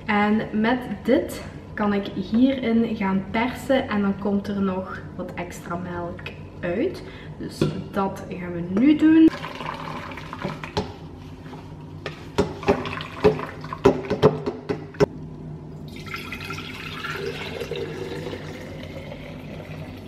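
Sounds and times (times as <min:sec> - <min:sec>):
milk pouring into glass jar: 0:15.9 - 0:20.0.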